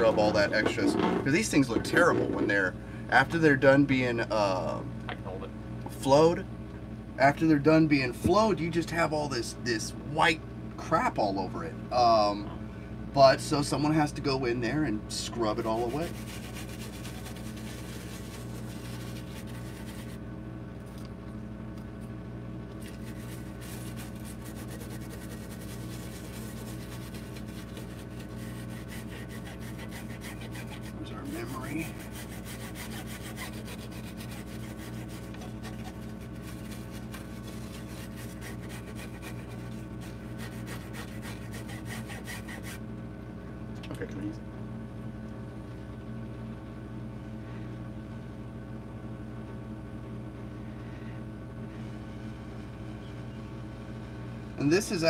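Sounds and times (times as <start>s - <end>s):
steady low hum: 0.0s - 55.0s
toothbrush scrubbing circuit board: 15.6s - 20.2s, 22.8s - 42.8s.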